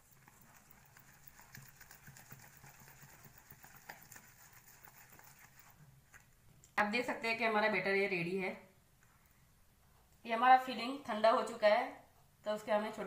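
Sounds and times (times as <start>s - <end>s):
hand squishing batter in bowl: 0.0s - 6.8s.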